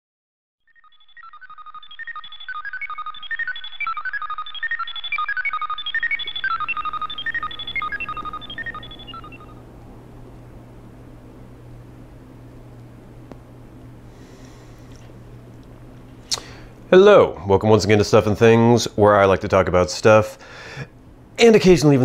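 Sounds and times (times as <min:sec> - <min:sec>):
quick high-pitched melody: 0:01.4 - 0:09.6
low steady hum: 0:02.0 - 0:22.0.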